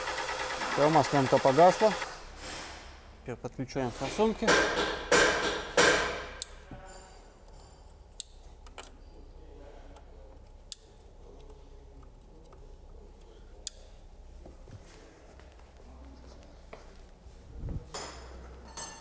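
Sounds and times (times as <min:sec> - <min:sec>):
wiring connectors clicking: 0:10.0 - 0:14.0.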